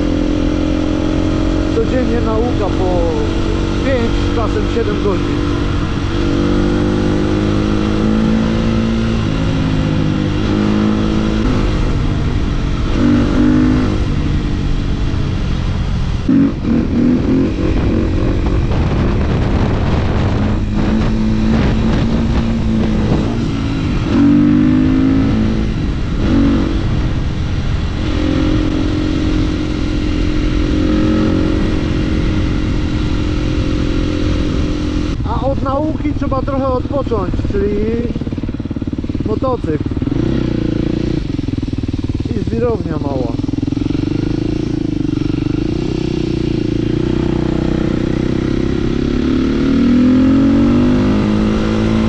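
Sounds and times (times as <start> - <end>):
motorcycle engine revving: 0.0 - 52.0.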